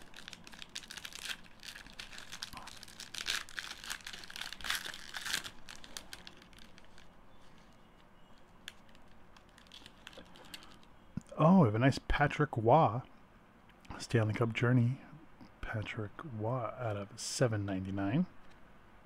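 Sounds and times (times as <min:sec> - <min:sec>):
card pack wrapper tearing: 0:00.0 - 0:07.8, 0:08.6 - 0:10.9.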